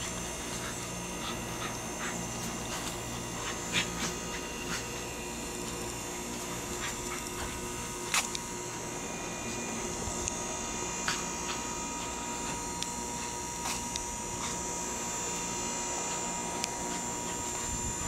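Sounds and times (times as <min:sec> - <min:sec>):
camera electronic hum and whine: 0:00.0 - 0:18.0.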